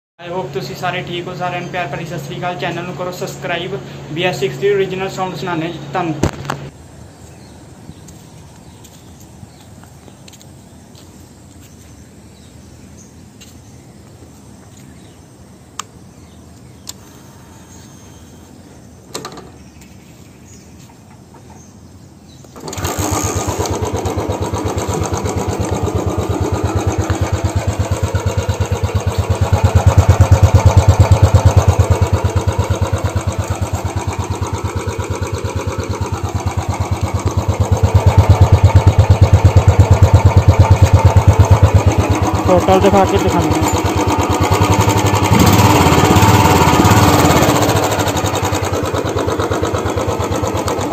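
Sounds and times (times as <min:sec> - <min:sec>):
motorcycle engine idling: 0:22.6 - 0:50.9.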